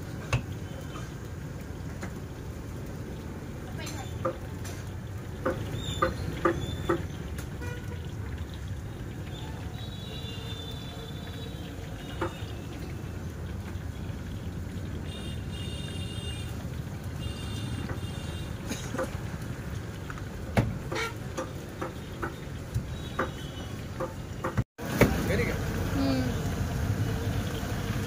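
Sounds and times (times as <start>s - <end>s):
oil bubbling in a wok: 0.0s - 28.0s
gas burner roaring: 24.8s - 28.0s.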